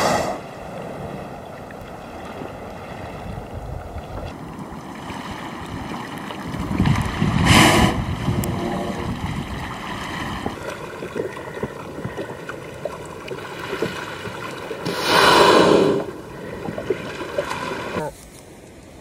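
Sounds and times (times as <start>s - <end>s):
whale exhaling breath: 0.0s - 0.6s, 7.3s - 9.0s, 10.0s - 18.0s
water lapping and splashing: 0.0s - 19.0s.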